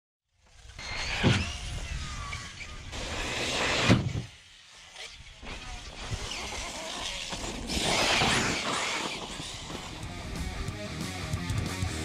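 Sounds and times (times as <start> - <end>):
rc car electric motor whining: 0.4 - 10.0.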